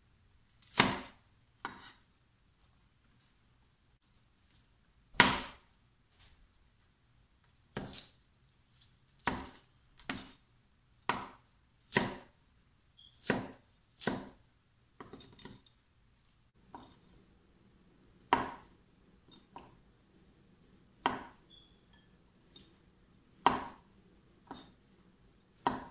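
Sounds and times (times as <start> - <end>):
cleaver chopping on wooden board: 0.7 - 1.8, 5.2 - 5.6, 9.2 - 10.3, 11.1 - 12.3, 13.2 - 14.4, 18.3 - 18.6, 21.0 - 21.4, 23.4 - 23.8, 25.6 - 25.9.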